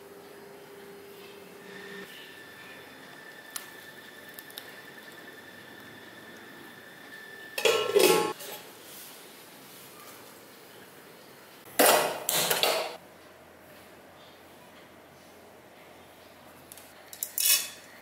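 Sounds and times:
metal spoon scraping steel bowl: 7.6s - 8.6s.

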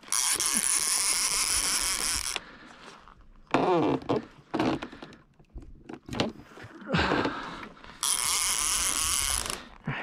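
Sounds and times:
fishing reel clicker buzzing: 0.0s - 2.4s, 8.0s - 9.7s.

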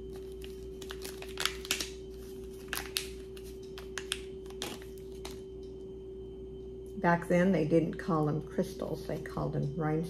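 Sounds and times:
plastic packaging crinkling: 0.0s - 5.4s
faint steady hum: 0.0s - 10.0s.

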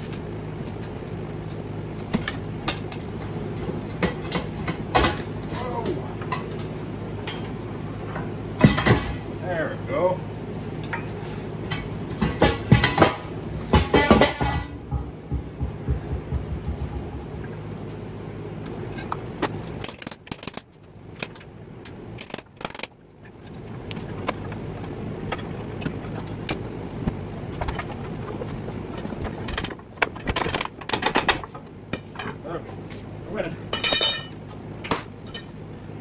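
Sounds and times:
loud metal knocks: 12.2s - 17.5s.

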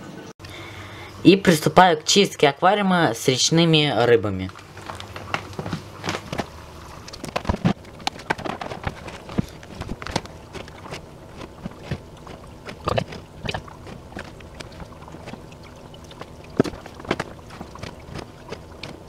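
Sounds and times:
aquarium gear clicking and knocking: 7.1s - 19.0s.

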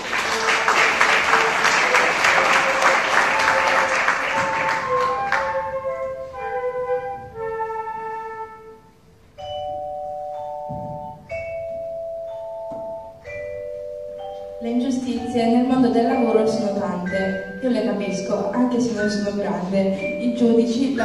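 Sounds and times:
audience applauding: 0.0s - 5.8s
soft bell-like instrumental music: 9.1s - 21.0s.

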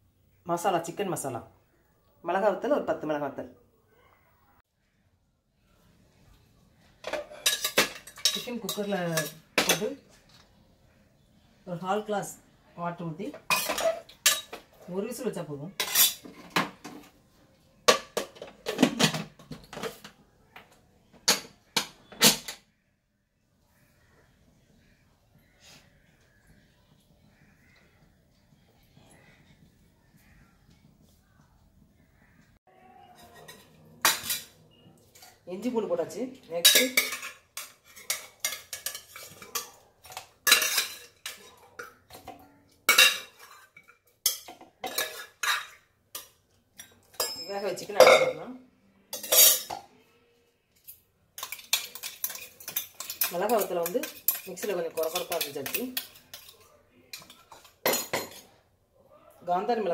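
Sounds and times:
metal pot clanking against bowl: 36.6s - 48.4s, 51.4s - 56.5s.

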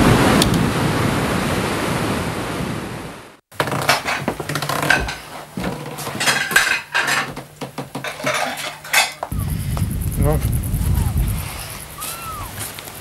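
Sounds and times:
hard objects clattering: 3.6s - 9.3s
metallic clinks and knocks: 3.8s - 9.3s.

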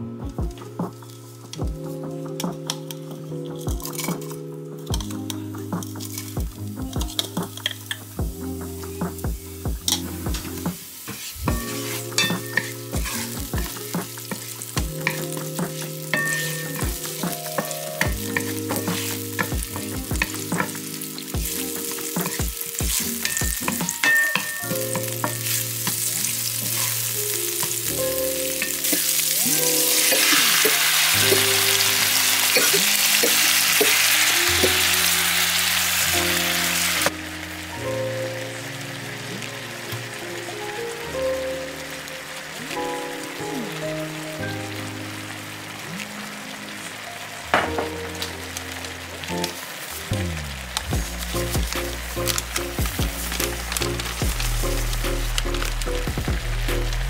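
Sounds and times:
loud sizzle: 0.0s - 57.0s
food frying in oil: 2.4s - 57.0s
wooden spatula scraping pan: 11.0s - 20.9s.

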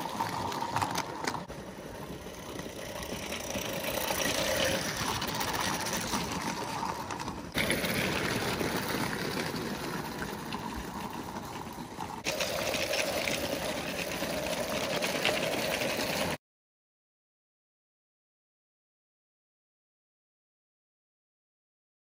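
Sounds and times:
model steam locomotive chuffing: 1.4s - 16.4s.

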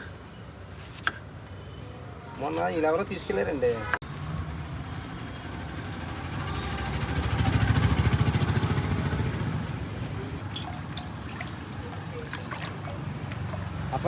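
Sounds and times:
vehicle engine passing: 5.7s - 14.0s.

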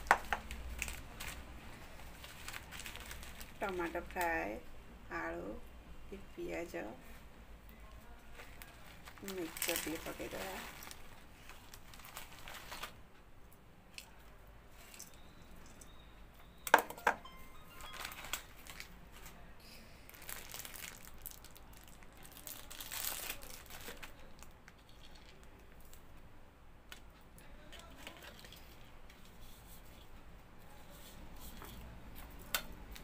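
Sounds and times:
plastic snack packet crinkling: 0.0s - 4.4s, 8.3s - 13.0s, 17.2s - 19.4s, 20.1s - 26.0s, 27.7s - 29.4s.

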